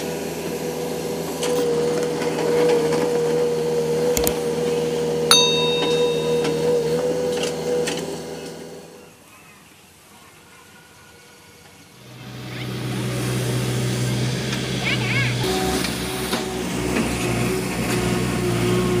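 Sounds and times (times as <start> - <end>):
backhoe hydraulic whine and engine: 0.0 - 4.8, 12.0 - 19.0
metallic clank: 5.3 - 7.0.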